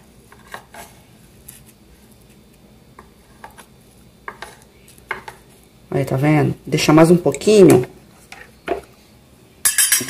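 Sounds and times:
spoon scraping grill plates: 0.0s - 1.7s, 2.9s - 5.6s, 9.6s - 10.0s.

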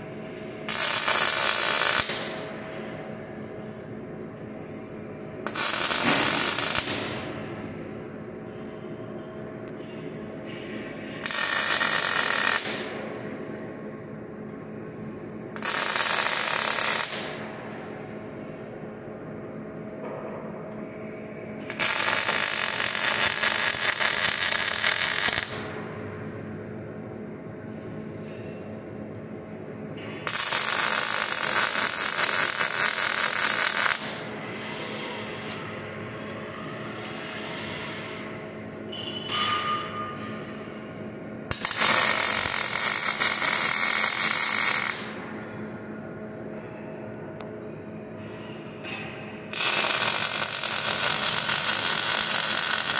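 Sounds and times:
welding arc crackling sizzle: 0.0s - 2.4s, 5.4s - 7.3s, 11.1s - 13.1s, 15.6s - 17.5s, 21.6s - 25.8s, 30.2s - 34.4s, 41.5s - 45.2s, 49.5s - 52.9s
steady machine hum: 0.0s - 52.9s.

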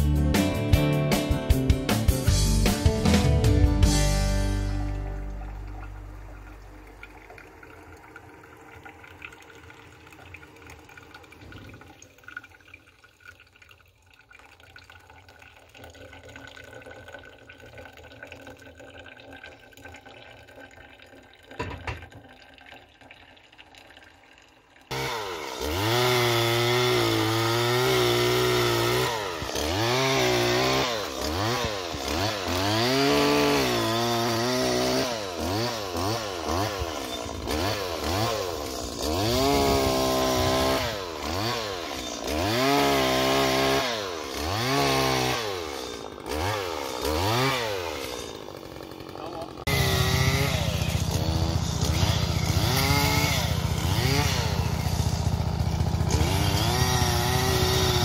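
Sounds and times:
coffee filter dripping: 5.1s - 24.9s
chainsaw revving: 24.9s - 58.0s.

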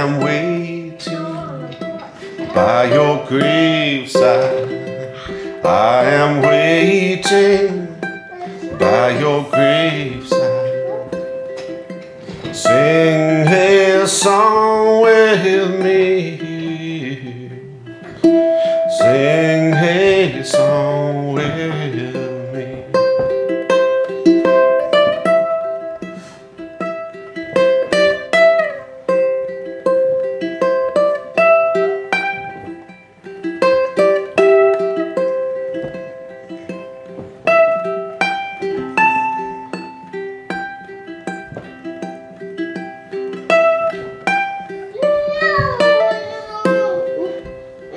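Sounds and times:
man singing: 0.0s - 11.4s, 12.3s - 23.5s
ukulele fingerpicked: 0.0s - 47.9s.

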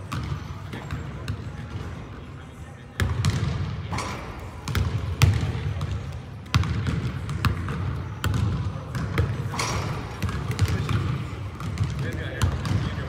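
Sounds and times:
basketball bouncing on hardwood floor: 4.7s - 9.2s, 11.6s - 12.8s.

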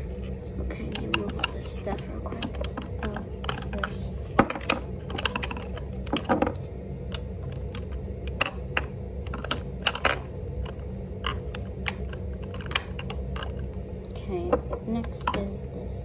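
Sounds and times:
steady low hum: 0.0s - 16.0s
plastic containers clicking and knocking: 0.6s - 6.6s.

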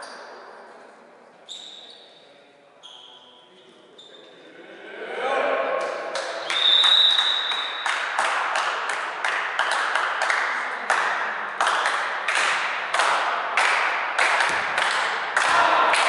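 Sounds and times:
hand clapping echoing: 5.8s - 16.0s
referee's whistle blast: 6.5s - 7.8s.

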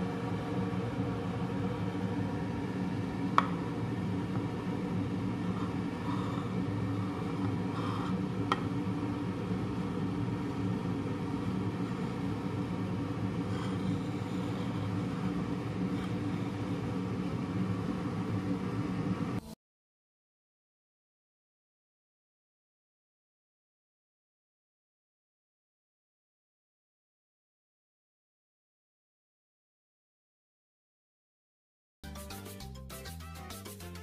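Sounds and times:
low machine hum: 0.0s - 19.4s.

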